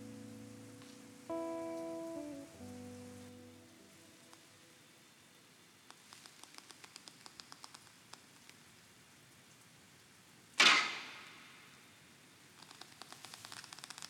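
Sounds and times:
faint ticks: 0:00.6 - 0:02.9, 0:04.0 - 0:04.5, 0:05.8 - 0:08.8, 0:12.6 - 0:14.0.

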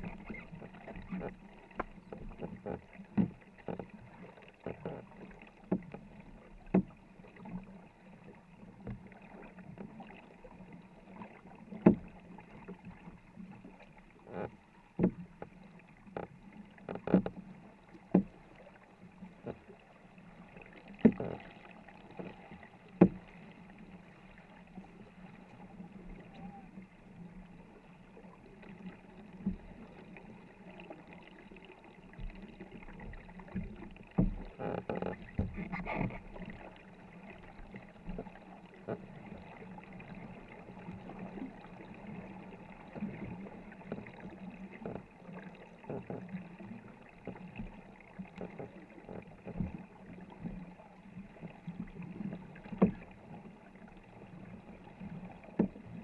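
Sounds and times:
paddle knocks: 0:00.0 - 0:07.6, 0:11.7 - 0:12.3, 0:14.2 - 0:18.4, 0:20.8 - 0:23.3, 0:33.0 - 0:36.6
water swishing along hull: 0:00.0 - 0:56.0.

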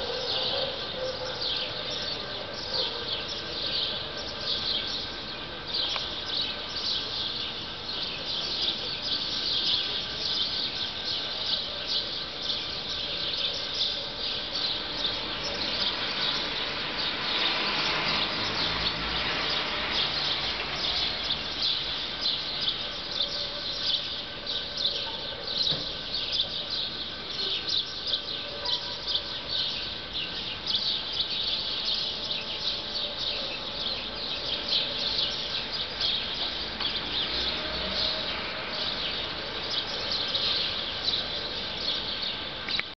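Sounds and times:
birds chirping: 0:00.0 - 0:43.0.

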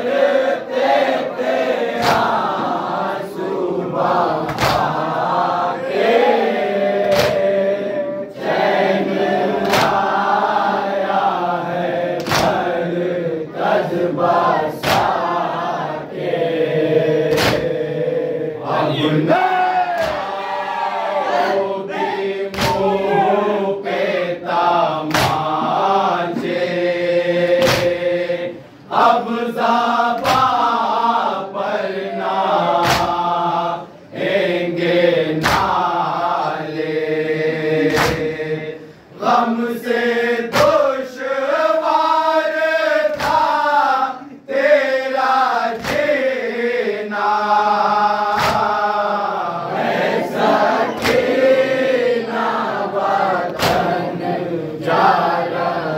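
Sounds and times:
men's chorus singing a lament: 0:00.0 - 0:55.9
hands slapping chests: 0:01.9 - 0:02.6, 0:04.4 - 0:05.1, 0:07.0 - 0:07.6, 0:09.6 - 0:10.2, 0:12.2 - 0:12.8, 0:14.7 - 0:15.3, 0:17.2 - 0:17.8, 0:19.9 - 0:20.4, 0:22.5 - 0:23.1, 0:25.0 - 0:25.6, 0:27.5 - 0:28.0, 0:30.2 - 0:30.8, 0:32.7 - 0:33.3, 0:35.4 - 0:35.9, 0:37.8 - 0:38.4, 0:40.5 - 0:41.0, 0:43.0 - 0:43.6, 0:45.7 - 0:46.3, 0:48.3 - 0:48.8, 0:50.5 - 0:51.4, 0:53.5 - 0:54.0.

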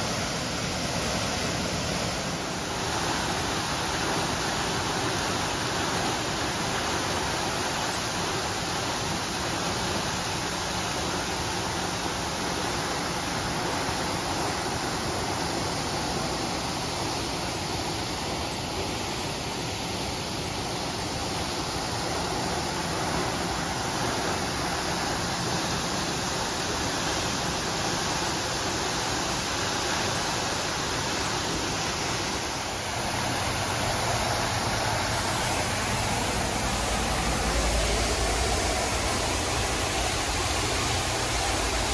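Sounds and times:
water gushing from hydrant: 0:00.0 - 0:41.9
water raining on wet pavement: 0:00.0 - 0:41.9.

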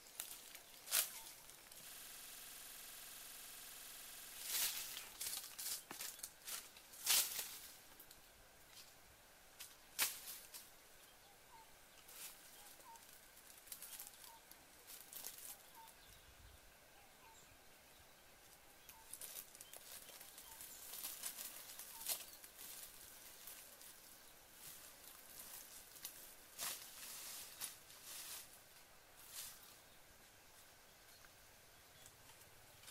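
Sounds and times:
faint bird chirp: 0:00.0 - 0:01.8, 0:10.8 - 0:26.3, 0:29.2 - 0:32.9
bare feet on dry leaves: 0:00.0 - 0:02.0, 0:04.4 - 0:08.1, 0:12.0 - 0:15.9, 0:18.9 - 0:29.9
bamboo mat being handled: 0:24.6 - 0:28.6.

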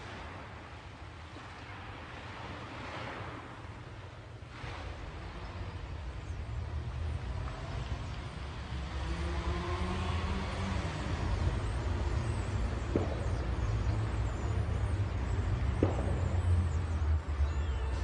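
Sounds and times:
street traffic rumble: 0:04.5 - 0:18.0.

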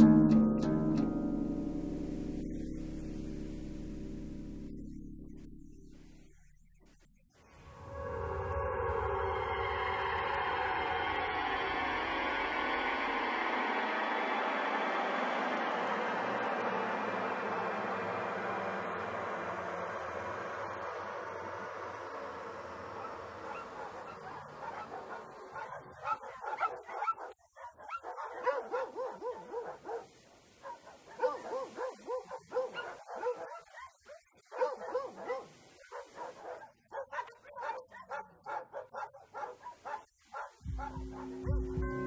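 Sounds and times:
steady hum: 0:00.0 - 0:25.6
animal yelps and barks: 0:22.8 - 0:41.8.

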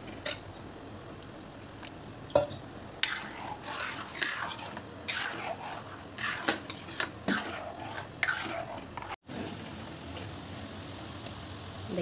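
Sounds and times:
metal spoon scraping a pan: 0:02.5 - 0:09.2.

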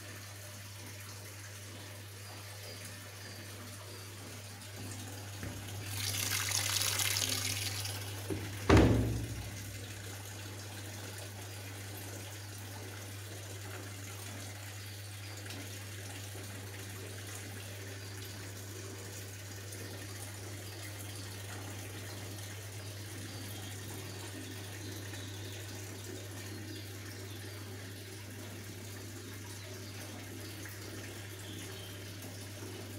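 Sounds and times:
water rushing into washing machine: 0:01.6 - 0:14.7
low machine hum: 0:01.7 - 0:10.1.

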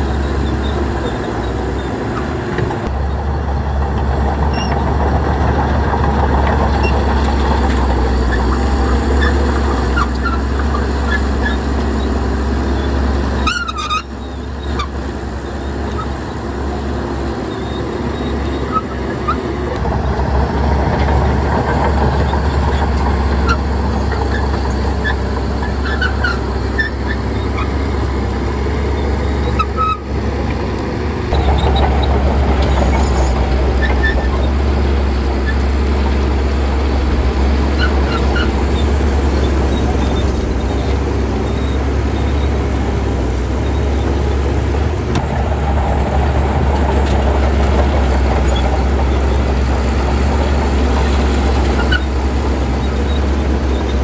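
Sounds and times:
diesel machinery engine rumble: 0:00.0 - 0:54.0
short high squeaks: 0:13.4 - 0:16.2, 0:37.4 - 0:42.7.

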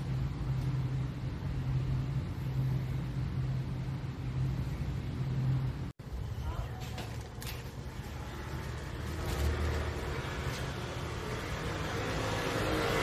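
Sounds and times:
low machine hum: 0:00.0 - 0:06.8.

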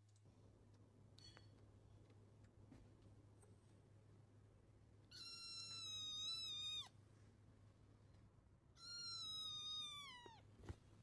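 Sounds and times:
kitten meowing: 0:05.1 - 0:07.0, 0:08.7 - 0:10.5.

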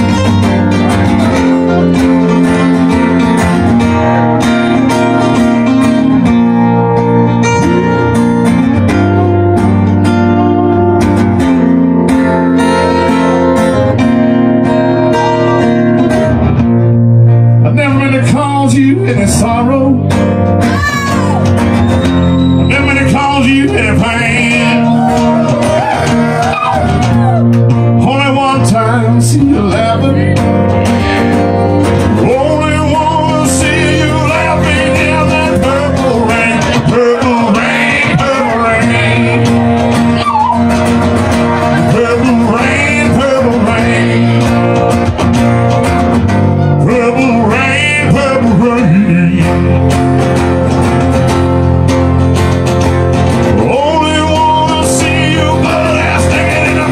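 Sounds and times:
acoustic guitars strummed: 0:00.0 - 0:56.9
man singing loudly: 0:22.7 - 0:26.5, 0:28.0 - 0:30.4, 0:32.1 - 0:39.6, 0:41.7 - 0:44.9, 0:46.8 - 0:49.8, 0:53.6 - 0:56.9.

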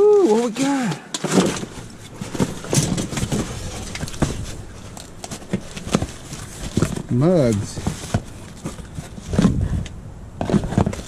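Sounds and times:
trash rustling: 0:00.1 - 0:11.0
knocks and clunks of items: 0:00.2 - 0:11.0.

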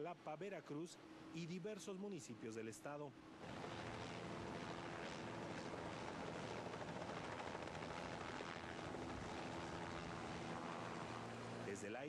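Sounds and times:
helicopter drone overhead: 0:03.2 - 0:12.0.

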